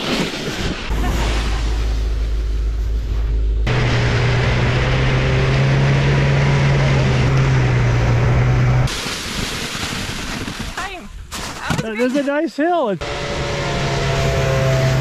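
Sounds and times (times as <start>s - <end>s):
vehicle engine humming: 0.9s - 8.9s, 13.0s - 15.0s.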